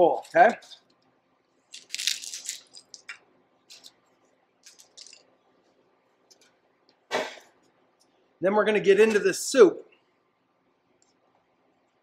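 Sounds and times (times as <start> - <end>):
tortilla pieces crunching: 1.7 - 3.1.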